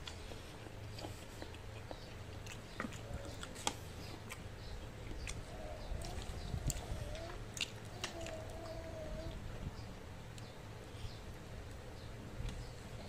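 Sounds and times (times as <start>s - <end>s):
close chewing and biting: 0.0s - 9.5s.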